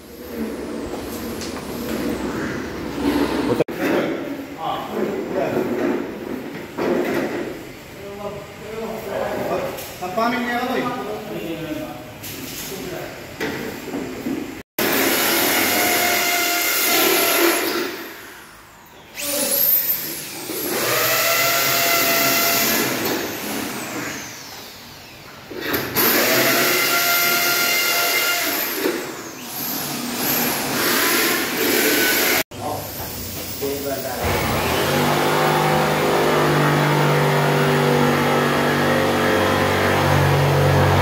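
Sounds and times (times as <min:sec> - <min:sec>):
power drill boring into wall: 0:14.8 - 0:18.1, 0:19.2 - 0:24.5, 0:25.7 - 0:32.4, 0:34.2 - 0:41.0.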